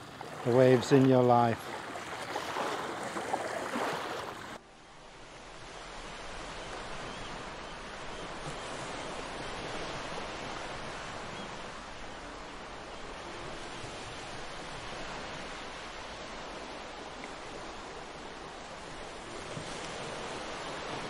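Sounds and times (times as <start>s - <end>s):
waves washing over pebbles: 0.0s - 4.6s.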